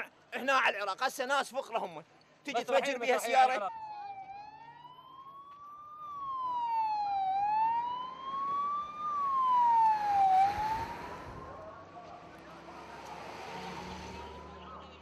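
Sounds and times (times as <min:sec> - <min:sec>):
fire engine siren wailing: 0:03.3 - 0:14.8
vehicle passing: 0:05.8 - 0:15.0.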